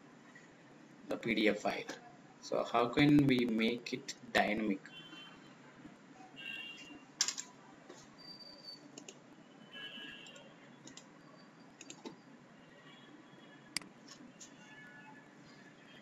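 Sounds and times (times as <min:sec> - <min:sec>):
mouse and keyboard clicks: 0:09.0 - 0:09.2, 0:10.8 - 0:11.1, 0:11.8 - 0:12.2.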